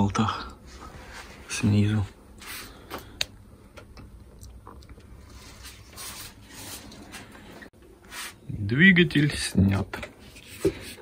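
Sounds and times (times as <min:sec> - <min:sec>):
soft rubbing: 0:05.2 - 0:07.5.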